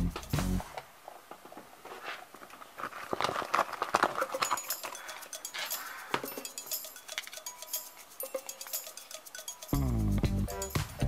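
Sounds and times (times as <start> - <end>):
plastic toy pieces clattering: 2.9 - 7.4.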